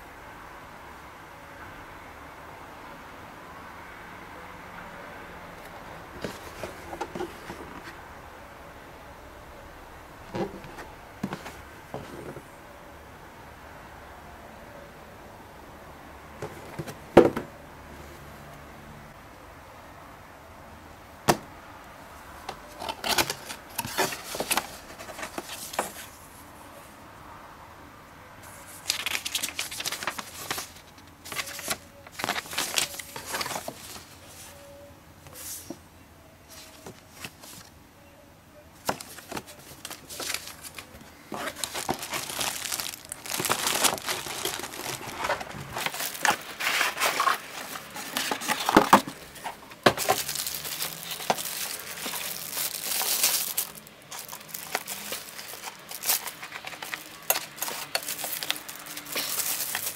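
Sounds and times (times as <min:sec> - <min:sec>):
paper sheets rustling: 0:06.2 - 0:08.0, 0:22.8 - 0:26.2, 0:28.4 - 0:34.5, 0:38.8 - 0:59.9
plastic bags crinkling: 0:28.8 - 0:34.2, 0:38.8 - 0:59.9
small packaging knocks: 0:41.3 - 0:46.4, 0:49.8 - 0:59.9.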